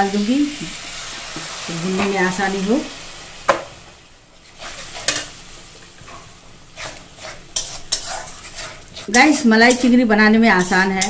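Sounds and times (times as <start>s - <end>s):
spices sizzling in oil: 0.0s - 11.0s
spatula scraping metal pan: 4.5s - 5.3s, 6.1s - 11.0s.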